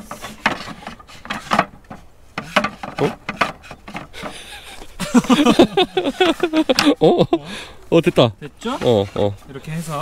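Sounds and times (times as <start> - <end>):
wooden parts knocking: 0.1 - 7.0.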